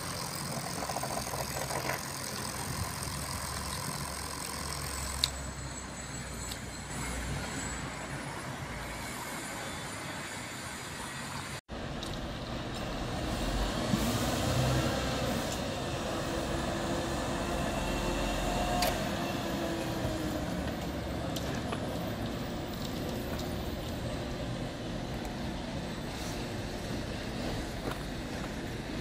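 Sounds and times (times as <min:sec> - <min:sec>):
heavy engine running: 0:00.0 - 0:07.6.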